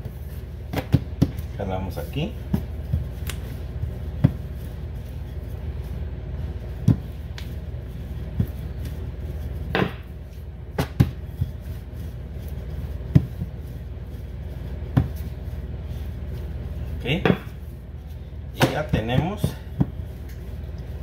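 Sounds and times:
rolling pin rolling dough: 0.0 - 21.0
steady low hum: 0.0 - 21.0.

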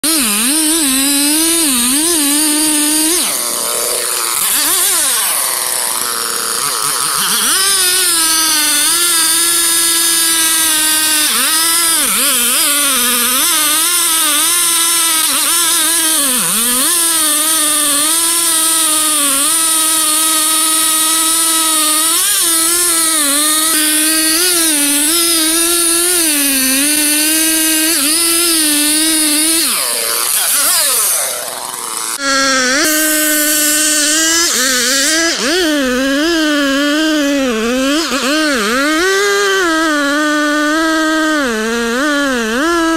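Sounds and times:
chainsaw cutting wood: 0.0 - 42.9.

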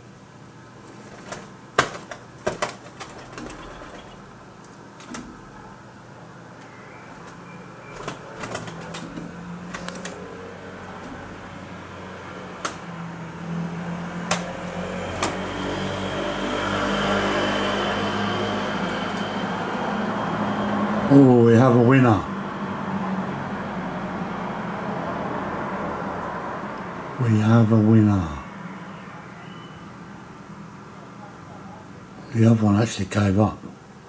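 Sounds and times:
pigeon wing slaps: 0.9 - 4.1, 8.0 - 10.2, 12.6 - 12.9, 14.2 - 15.4
vehicle engine hum: 2.6 - 32.0.

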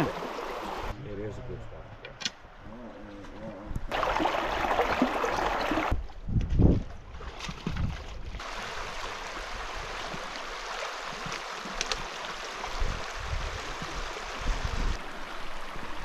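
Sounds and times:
river water rushing over rocks: 3.9 - 5.9.

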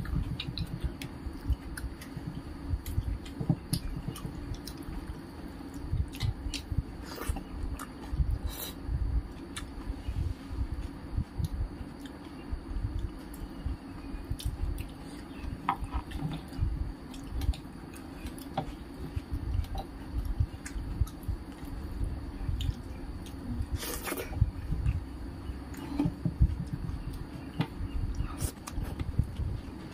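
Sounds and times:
chewing with full mouth: 0.0 - 9.8, 11.2 - 25.1
steady low hum: 0.0 - 29.9.

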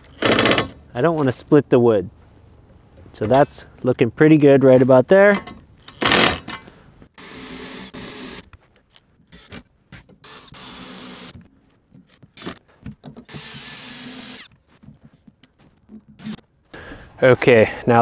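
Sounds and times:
cordless drill running: 7.2 - 8.5, 10.2 - 11.4, 13.3 - 14.5.

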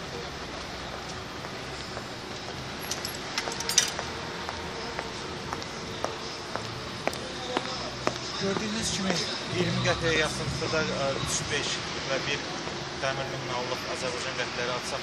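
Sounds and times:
coins clinking into parking meter: 2.8 - 4.0.

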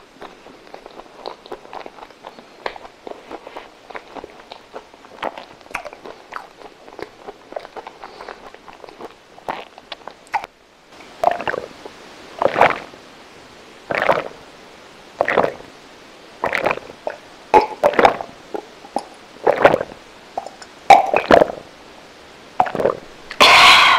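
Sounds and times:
person gulping a drink: 11.2 - 11.8, 12.4 - 13.0, 13.9 - 14.4, 15.2 - 15.7, 16.4 - 21.7, 22.6 - 23.9.

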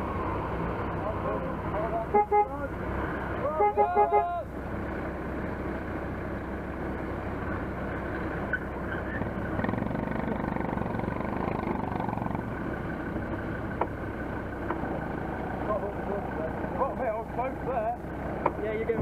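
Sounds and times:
vehicle engine idling: 0.0 - 19.0.

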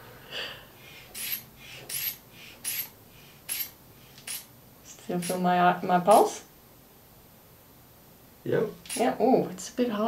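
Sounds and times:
inflation bulb squeezes hissing: 1.2 - 4.5.

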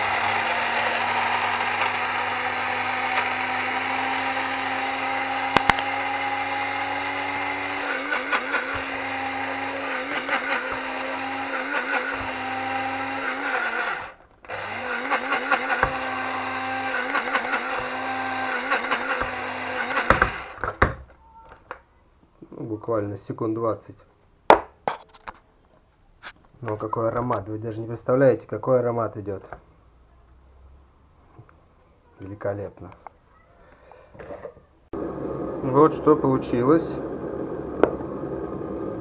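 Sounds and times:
electric coffee grinder running: 0.0 - 20.8, 35.0 - 39.0.

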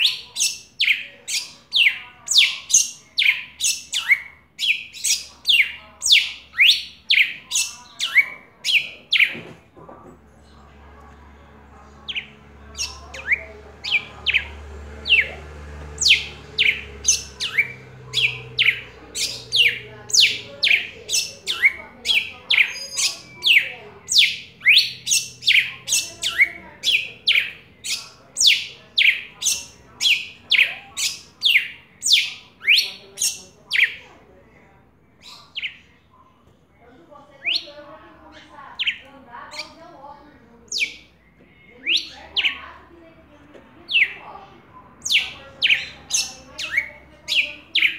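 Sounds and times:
bird singing sharp descending notes: 11.4 - 33.9.

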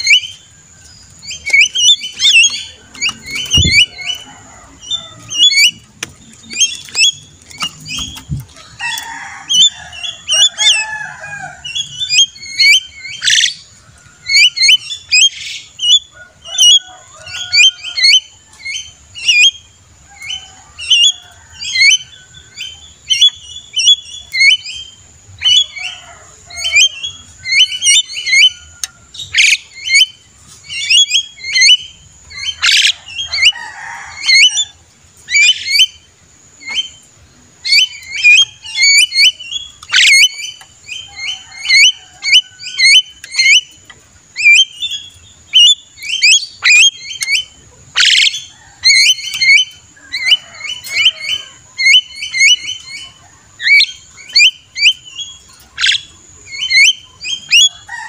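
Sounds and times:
bird chattering whistled notes: 1.2 - 5.8, 37.7 - 43.8, 44.4 - 57.7
bird harsh squawk: 1.4 - 5.8, 32.4 - 34.7, 37.7 - 40.4, 45.5 - 55.0.

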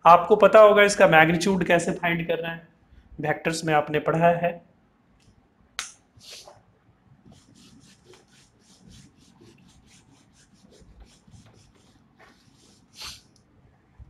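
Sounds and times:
eraser rubbing on whiteboard: 6.2 - 6.6, 7.3 - 13.3.

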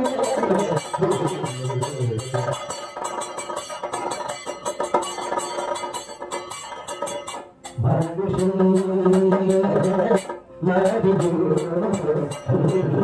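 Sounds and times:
percussion strokes: 0.0 - 13.0
man singing low notes: 7.8 - 13.0.

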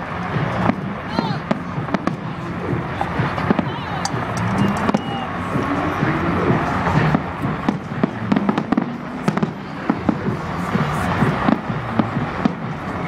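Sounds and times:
background din: 0.0 - 13.0
fireworks bangs and crackles: 0.0 - 13.0.

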